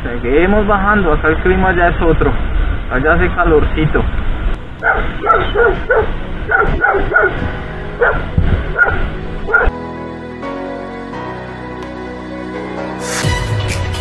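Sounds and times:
wind: 0.0s - 11.6s
motorcycle rumble: 3.6s - 9.7s
background music: 4.6s - 14.0s
dog barking: 4.8s - 9.7s.

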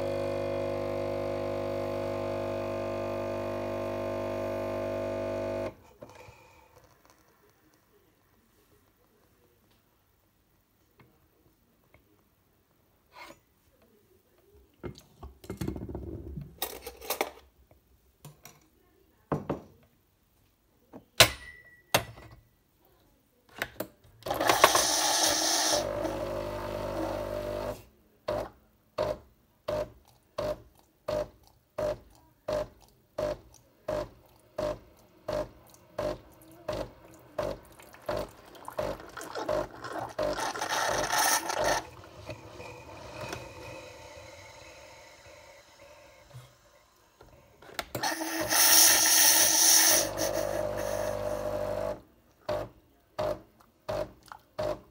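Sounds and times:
coffee machine pump running: 0.0s - 5.7s, 24.3s - 27.8s, 33.2s - 47.2s, 47.9s - 52.6s
steam hiss: 48.0s - 51.0s.

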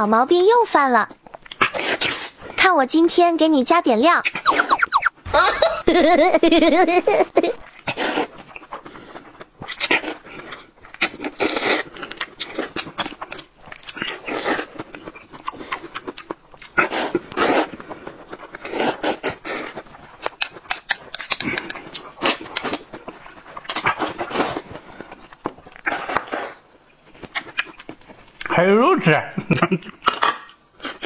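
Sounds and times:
chewing and lip-smacking: 1.1s - 2.6s, 4.2s - 5.2s, 7.6s - 28.5s, 29.7s - 31.0s.

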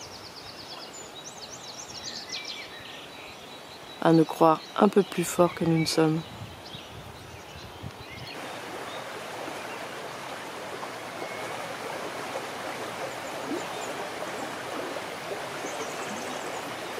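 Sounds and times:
river splashing over rocks: 8.4s - 16.9s.

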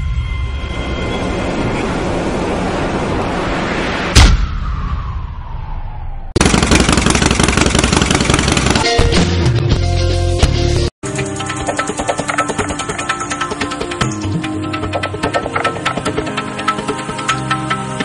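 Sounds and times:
falling tone: 0.0s - 6.4s
sharp loud hit: 4.0s - 5.6s.

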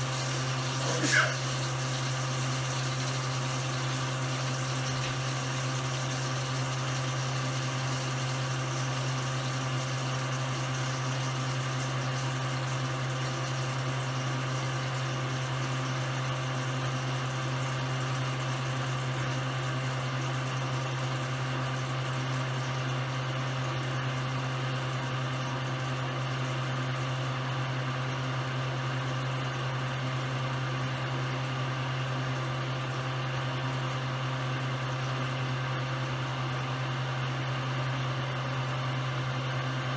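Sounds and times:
electric motor humming: 0.0s - 3.2s.

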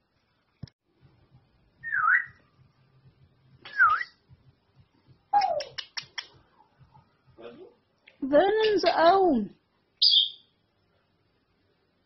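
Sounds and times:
parrot whistling: 1.8s - 2.4s, 3.7s - 4.2s, 10.0s - 10.5s
sharp clicks: 5.4s - 6.4s.

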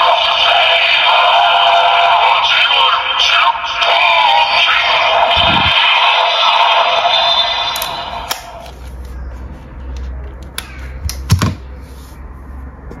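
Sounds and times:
electronic toy sound effect: 3.8s - 8.7s.

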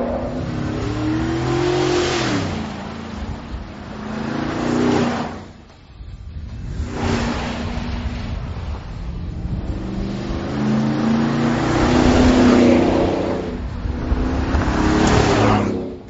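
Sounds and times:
truck engine driving past: 0.0s - 5.4s.

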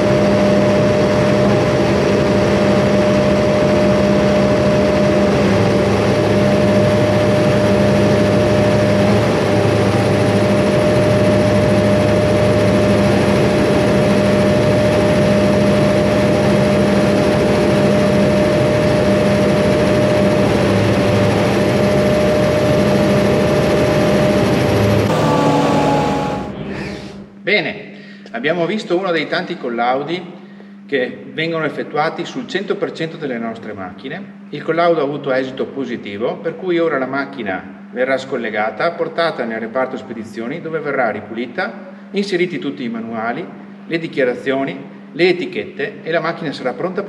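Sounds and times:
diesel generator engine drone: 0.0s - 27.4s
steady high tone: 25.0s - 27.3s.

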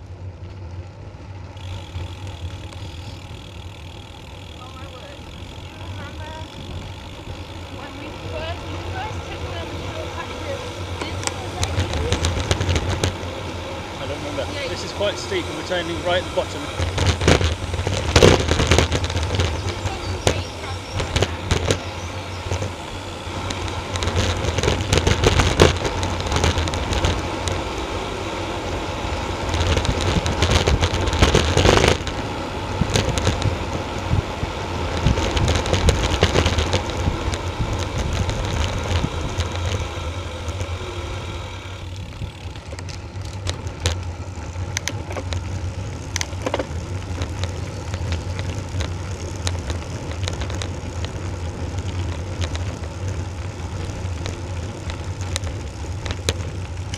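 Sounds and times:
bicycle tyre rumble: 0.0s - 56.9s
bike rattling clicks: 0.2s - 56.9s
wind rushing over microphone: 8.1s - 42.6s.

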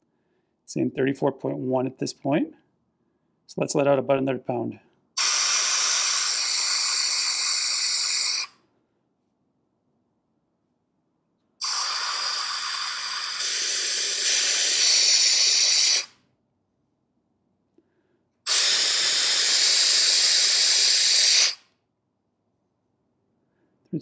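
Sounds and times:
air hissing out of tires: 5.2s - 8.6s, 11.6s - 16.2s, 18.5s - 21.6s.

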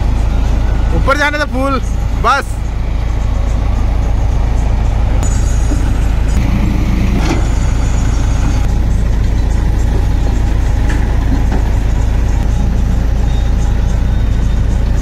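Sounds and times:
diesel engines running loudly: 0.0s - 15.0s.

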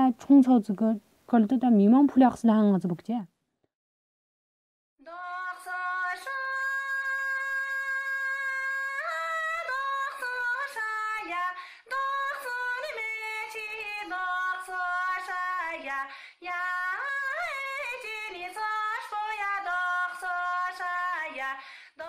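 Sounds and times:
woman singing unaccompanied: 5.0s - 22.0s
singer breathing: 11.6s - 11.9s, 16.1s - 16.4s, 21.6s - 22.0s.

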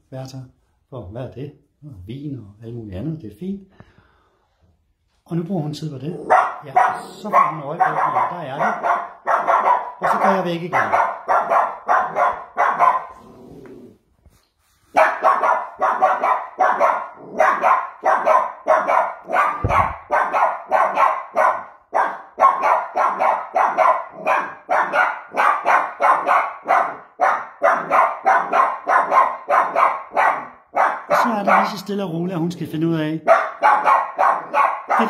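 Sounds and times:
puppy barking: 6.1s - 13.2s, 14.9s - 31.9s, 33.2s - 35.0s.

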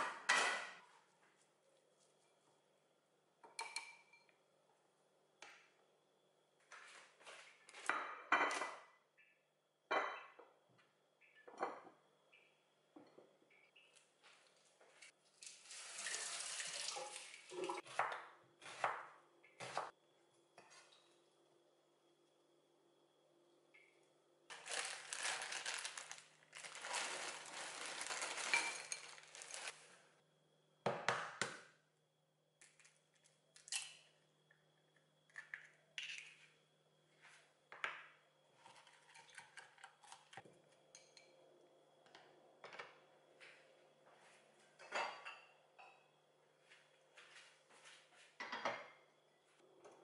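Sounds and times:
rustling and scraping: 24.5s - 30.0s.

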